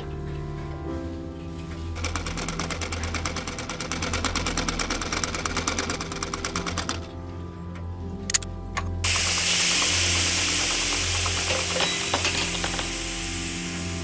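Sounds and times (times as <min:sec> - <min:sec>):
soft background music: 0:00.0 - 0:14.0
robot mechanism clicking rapidly: 0:02.0 - 0:07.1, 0:09.1 - 0:12.9.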